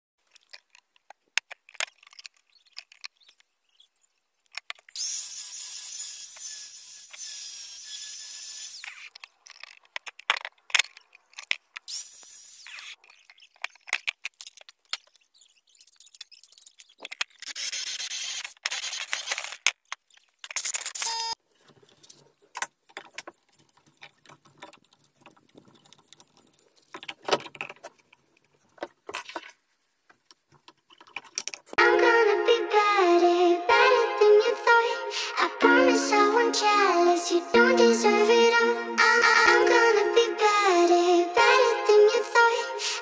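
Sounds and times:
angle grinder cutting stone: 5.0s - 9.1s.

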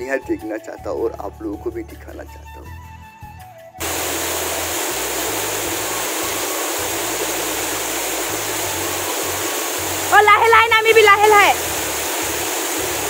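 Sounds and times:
waterfall pouring onto rock: 3.8s - 13.0s.

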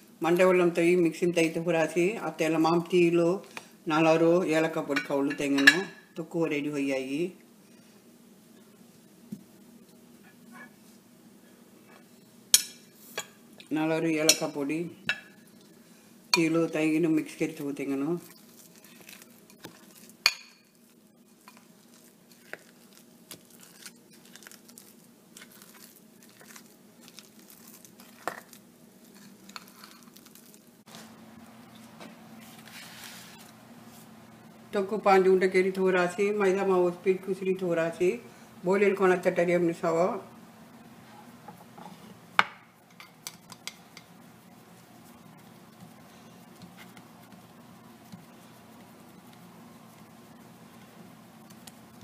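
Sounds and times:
faint hum: 14.7s - 52.0s
spoon mixing thick filling: 15.1s - 31.0s, 42.9s - 52.0s.

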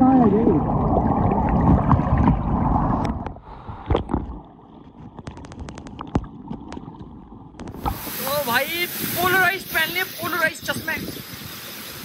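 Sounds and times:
small clicks and drips: 3.2s - 7.9s.

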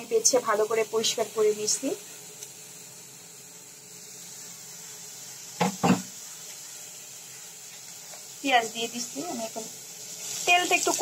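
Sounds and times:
steady faint hiss: 0.0s - 11.0s
kitchenware clunks: 5.6s - 6.1s.

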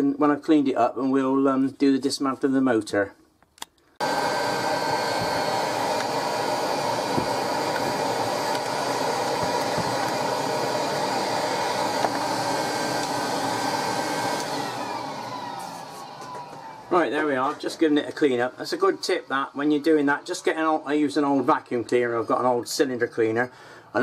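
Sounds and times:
motor winding down whine: 4.0s - 21.1s
vacuum cleaner running: 4.0s - 21.4s.

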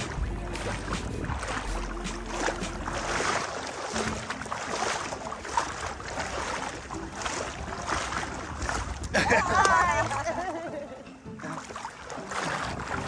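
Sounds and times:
seawater splashing around waders: 0.0s - 13.0s.

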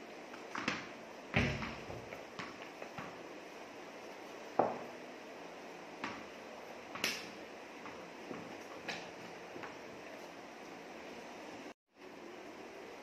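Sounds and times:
ball knocking on tiled floor: 0.4s - 3.2s, 4.6s - 4.9s.

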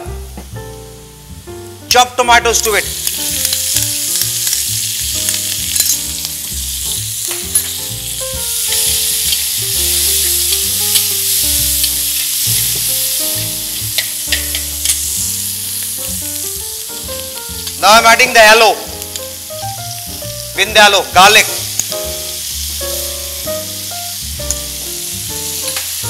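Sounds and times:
soft background music: 0.0s - 26.0s
vegetables sizzling in hot oil: 2.3s - 26.0s.

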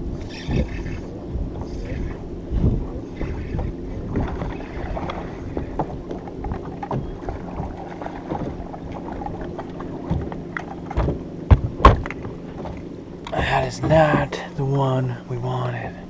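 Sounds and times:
waves slapping boat hull: 0.0s - 16.0s
wind on water: 0.0s - 16.0s
knocks and clunks on deck: 2.6s - 14.5s
heavy thump: 10.1s - 12.8s.

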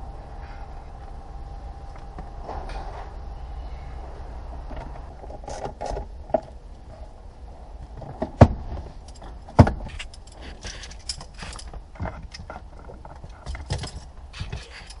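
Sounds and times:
metal hand tools clinking: 9.9s - 11.7s.

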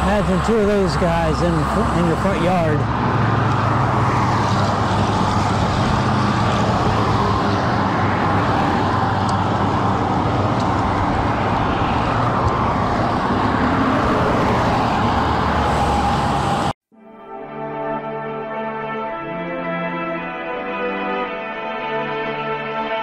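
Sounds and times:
road traffic noise: 0.0s - 16.8s.

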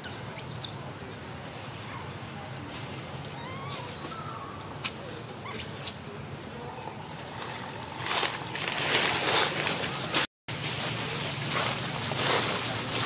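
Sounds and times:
dry leaves rustling underfoot: 1.7s - 5.4s, 6.7s - 13.0s.

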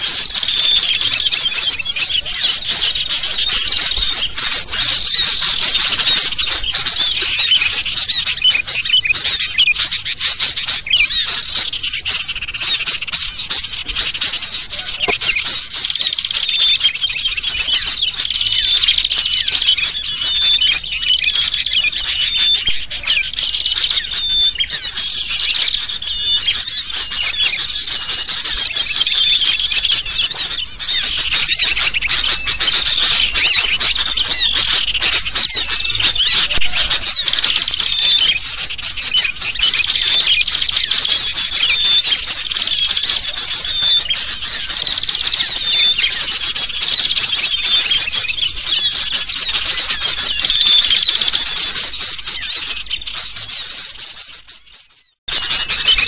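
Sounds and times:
bulbuls calling: 0.0s - 56.0s
small birds chirping: 0.0s - 56.0s.

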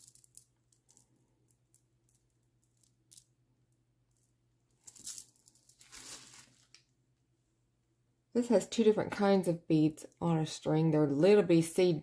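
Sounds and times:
plastic bags and bubble wrap crinkling: 5.6s - 6.8s.

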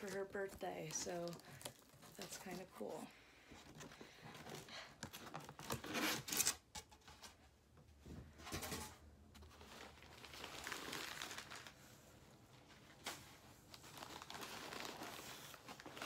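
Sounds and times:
newspaper rustling: 9.4s - 16.0s.

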